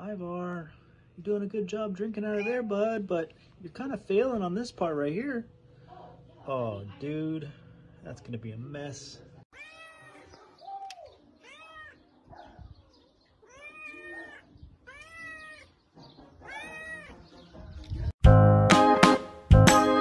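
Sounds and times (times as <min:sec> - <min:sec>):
cat meowing: 0:02.3 - 0:02.7, 0:09.5 - 0:10.4, 0:11.4 - 0:12.1, 0:13.4 - 0:15.8, 0:16.4 - 0:17.3
loud music: 0:18.2 - 0:20.0.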